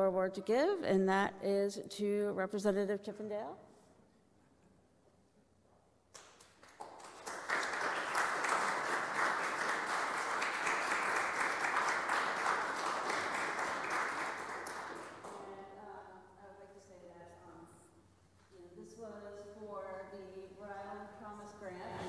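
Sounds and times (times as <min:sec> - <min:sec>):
audience applauding: 0:06.2 - 0:15.3.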